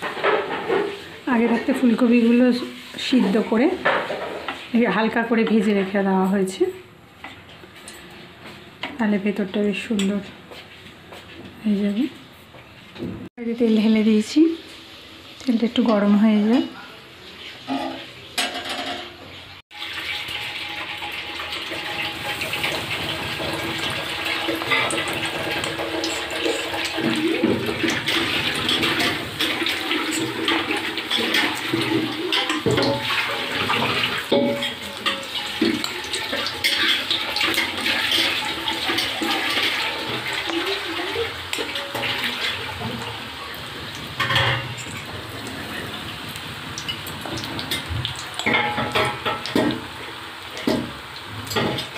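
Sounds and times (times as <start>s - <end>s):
food deep-frying in hot oil: 0.0s - 8.2s, 13.3s - 51.9s.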